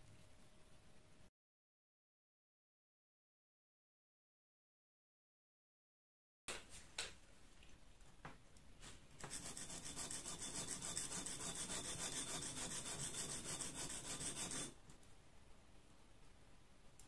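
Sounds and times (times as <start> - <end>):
scissors scratching on sharpening stone: 9.3 - 14.8.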